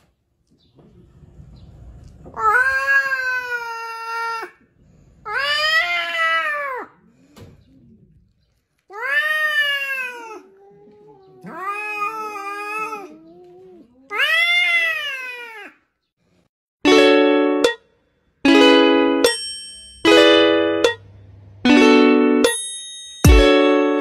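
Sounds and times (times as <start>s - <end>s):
cat yowling: 2.4s - 4.6s, 5.3s - 7.0s, 8.9s - 15.8s.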